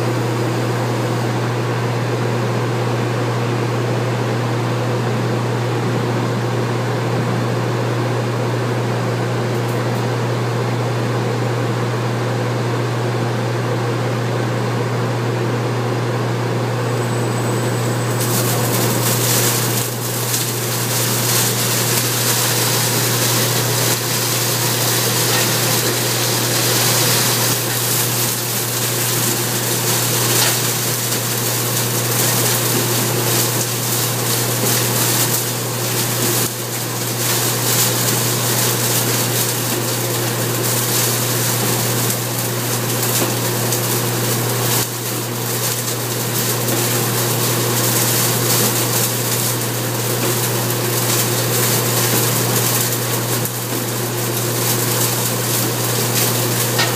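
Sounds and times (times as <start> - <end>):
machine drum churning straw: 16.8 - 56.9.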